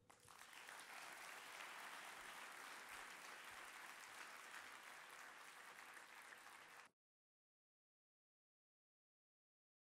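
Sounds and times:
faint audience applause: 0.0 - 6.9.

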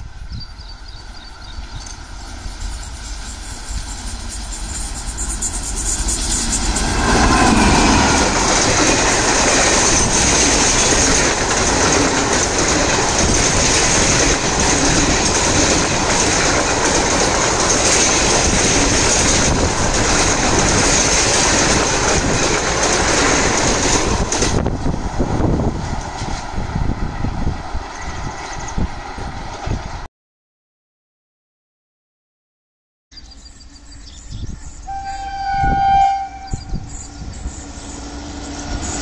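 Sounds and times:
electric locomotive whine: 0.0 - 30.1, 33.2 - 39.0
train wheels clacking on rail joints: 0.8 - 26.6, 34.9 - 39.0.

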